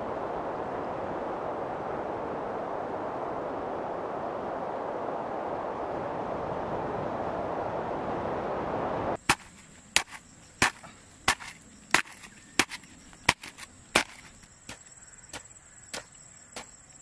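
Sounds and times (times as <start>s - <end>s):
wind-like rush: 0.0s - 15.8s
spade chopping into soil: 9.2s - 16.8s
high insect trill: 9.2s - 17.0s.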